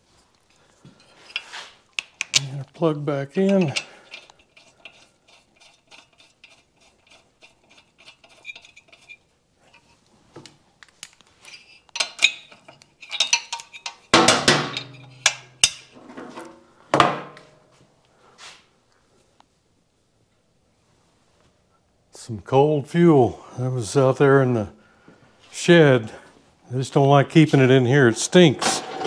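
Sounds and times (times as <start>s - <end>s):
metal tool clinks: 11.0s - 14.1s.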